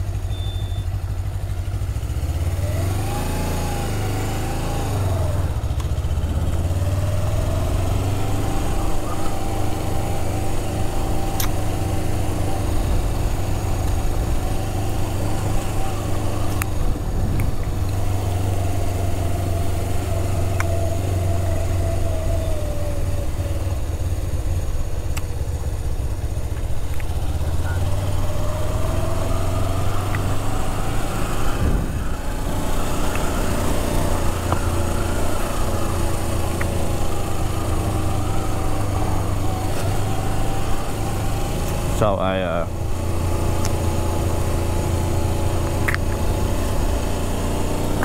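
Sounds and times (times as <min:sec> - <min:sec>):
motorcycle engine riding: 0:00.0 - 0:48.0
steady low rumble: 0:12.0 - 0:19.7
sharp clicks: 0:45.6 - 0:46.2.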